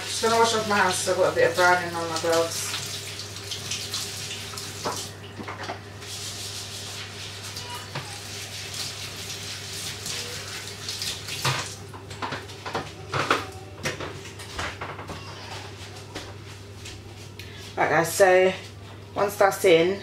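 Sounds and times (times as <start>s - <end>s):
tap water splashing on hands: 2.2s - 5.8s, 9.9s - 11.8s.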